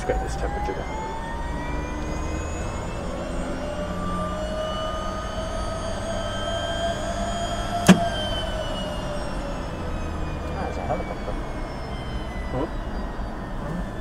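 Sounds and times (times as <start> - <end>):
helicopter turbine whine: 0.0 - 14.0
sharp click: 7.8 - 8.1.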